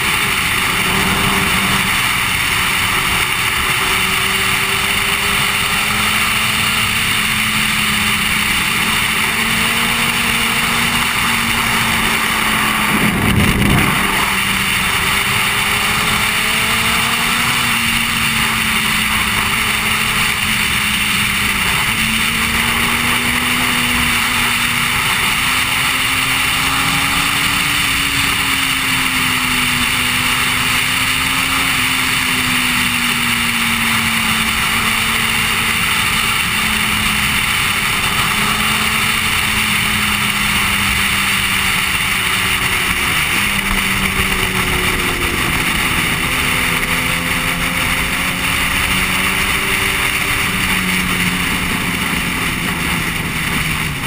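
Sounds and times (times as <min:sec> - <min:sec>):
low whoosh: 0:00.0 - 0:03.3, 0:11.9 - 0:15.0
motorcycle engine cruising: 0:00.0 - 0:54.0
wind rushing: 0:11.9 - 0:15.0.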